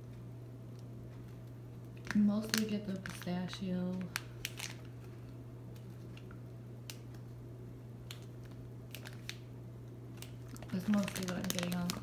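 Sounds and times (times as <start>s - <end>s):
low electrical hum: 0.0s - 12.0s
plastic bag crinkling: 1.9s - 6.4s, 8.1s - 9.5s, 10.1s - 12.0s.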